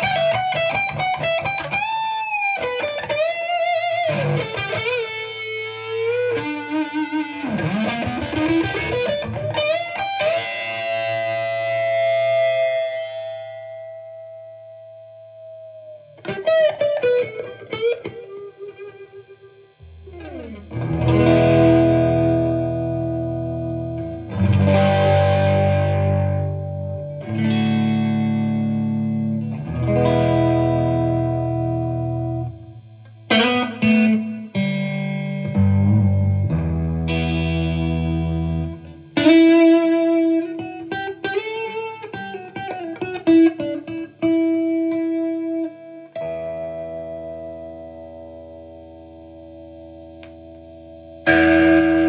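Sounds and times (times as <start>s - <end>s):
overdriven electric guitar: 0.0s - 52.0s.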